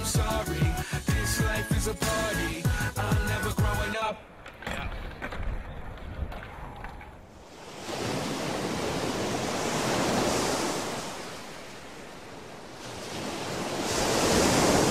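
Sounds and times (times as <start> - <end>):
surf washing onto rocks: 7.5 - 14.9.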